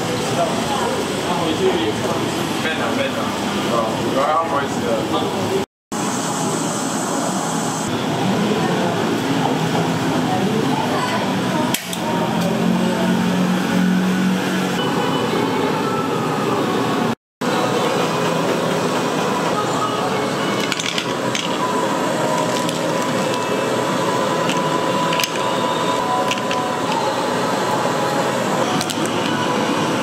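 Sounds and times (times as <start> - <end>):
utensils clinking: 20.5 - 27.3.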